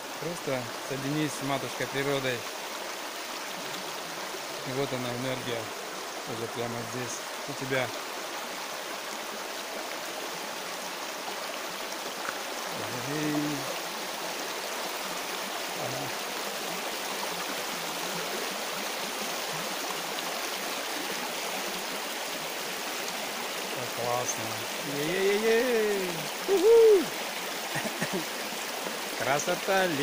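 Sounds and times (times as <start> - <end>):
river rushing over stones: 0.0 - 30.0.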